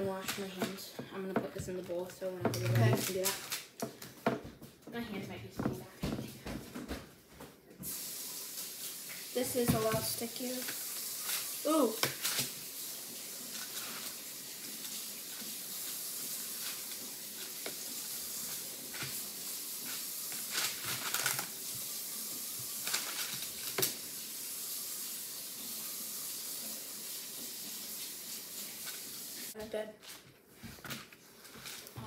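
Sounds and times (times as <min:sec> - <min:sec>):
tap running into sink: 0:09.1 - 0:10.2.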